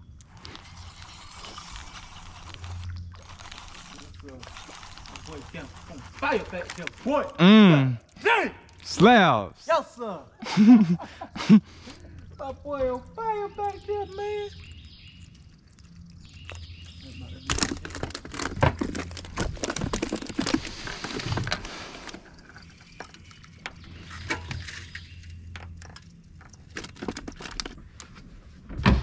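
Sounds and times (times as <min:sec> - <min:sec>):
fishing gear rattling: 0:17.5 - 0:28.2.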